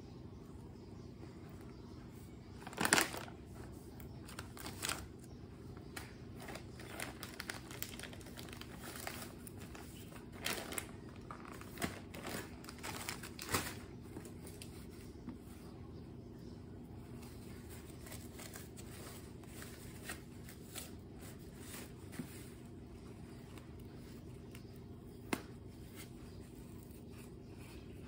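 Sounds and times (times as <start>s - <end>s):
diaper package crinkling: 2.6s - 3.4s, 4.2s - 5.1s, 6.4s - 14.4s.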